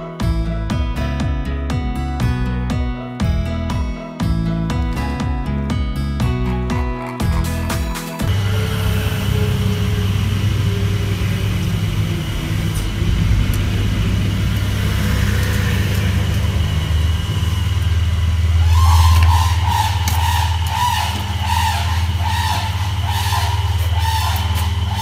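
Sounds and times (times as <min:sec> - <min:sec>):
low engine-like hum: 0:08.3 - 0:25.0
cranes calling in duet: 0:14.6 - 0:25.0.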